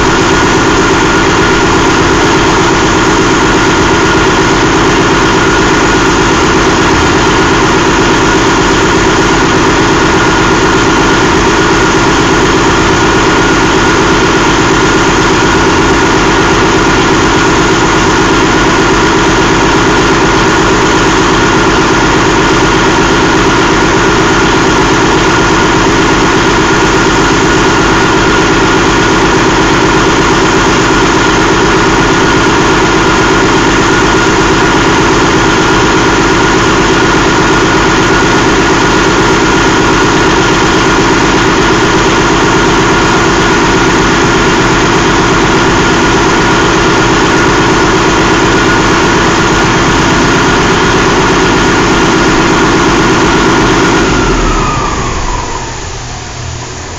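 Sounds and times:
diesel engine idling: 0:00.0 - 0:56.9
thin high whine: 0:54.2 - 0:56.9.

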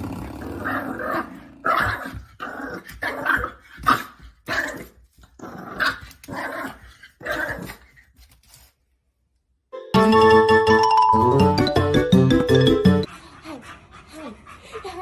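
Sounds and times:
puppy growling and barking: 0:00.0 - 0:07.8.

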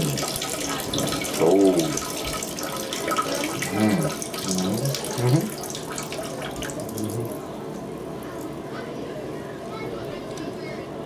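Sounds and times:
urine splashing into toilet water: 0:00.0 - 0:08.6.

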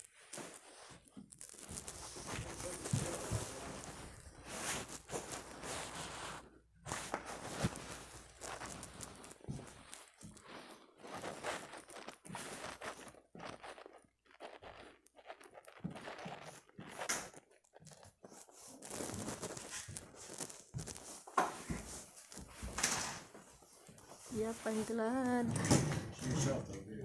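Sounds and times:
crunching and rustling: 0:00.0 - 0:25.5
footsteps on hard floor: 0:00.4 - 0:25.9.

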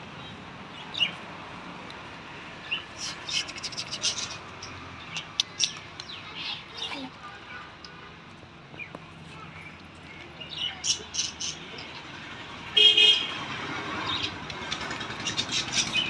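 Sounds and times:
budgerigars chirping: 0:02.7 - 0:06.6, 0:14.0 - 0:16.0.

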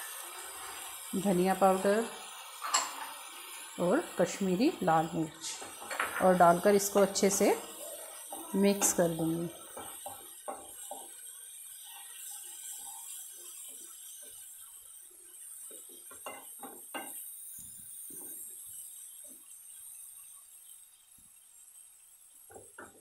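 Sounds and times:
spatula scraping and knocking pan: 0:05.4 - 0:07.4, 0:08.0 - 0:11.2, 0:15.6 - 0:17.2.

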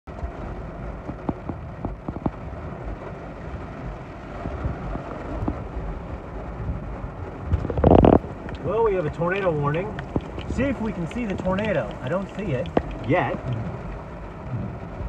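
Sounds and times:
heavy rain on car roof: 0:00.1 - 0:15.0
drops ticking on glass: 0:08.5 - 0:14.1.

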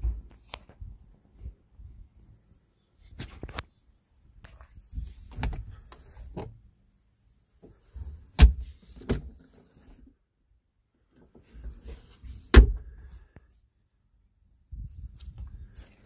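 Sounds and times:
sharp plastic thunks: 0:08.4 - 0:09.3, 0:12.5 - 0:12.9
hard plastic clunks and knocks: 0:12.6 - 0:12.9.

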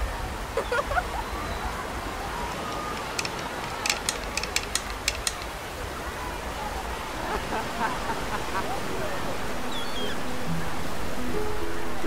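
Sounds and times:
surf washing: 0:00.0 - 0:12.0
sharp clicks: 0:02.7 - 0:05.6.

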